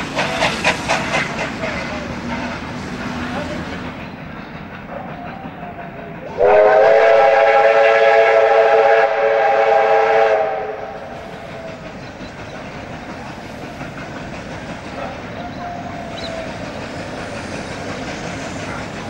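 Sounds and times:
locomotive steam whistle: 6.3 - 11.3.

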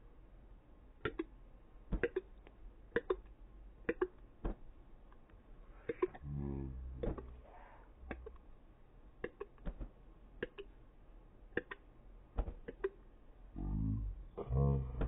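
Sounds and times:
deep slowed-down voice: 6.1 - 8.4, 13.5 - 15.0.

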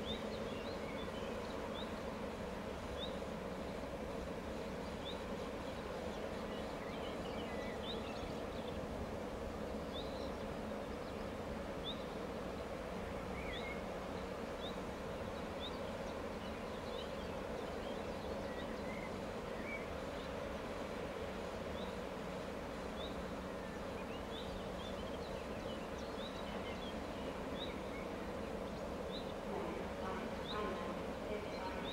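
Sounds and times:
diesel locomotive idling: 20.5 - 31.9
birds chirping: 22.9 - 31.9.

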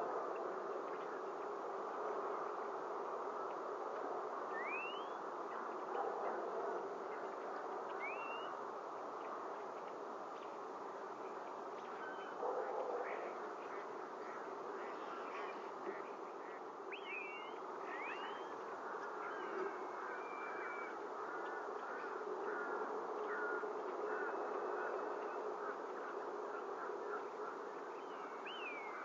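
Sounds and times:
steady buzzing outdoor noise: 0.0 - 29.0
rising bird whistles: 4.6 - 5.2, 16.9 - 18.5.

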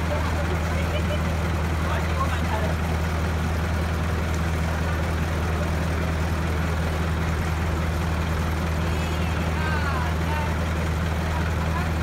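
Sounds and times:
miniature train engine idling: 0.0 - 12.0.

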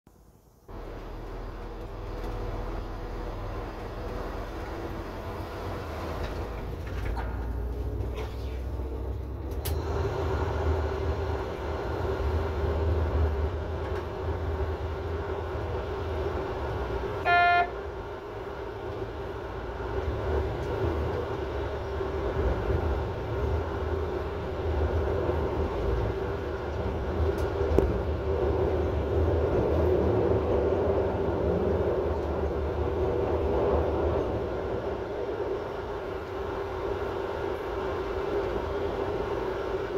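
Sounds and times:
train running drone: 0.1 - 39.9
short loud tone: 17.2 - 17.8.

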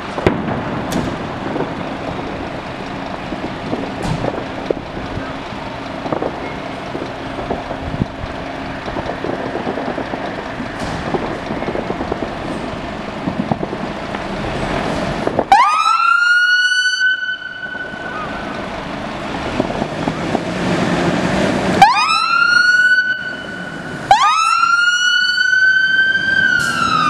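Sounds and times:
diesel engine running: 0.0 - 27.0
fire engine siren: 15.3 - 27.0.

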